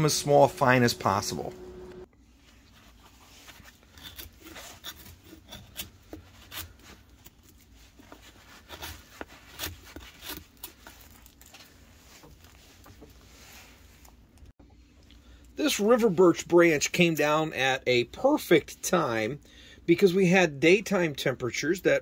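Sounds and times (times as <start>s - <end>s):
knife scraping bark: 3.4s - 11.3s.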